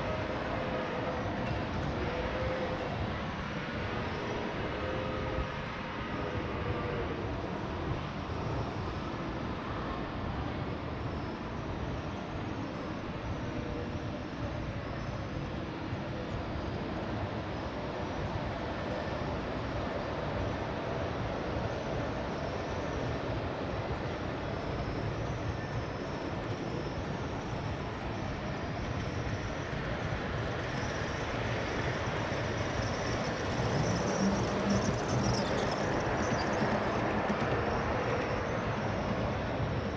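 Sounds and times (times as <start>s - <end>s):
model train wheels and motor rumbling: 0.0s - 39.9s
passing model locomotive hum: 0.0s - 39.9s
model train wheels rumbling on rail: 24.2s - 39.9s.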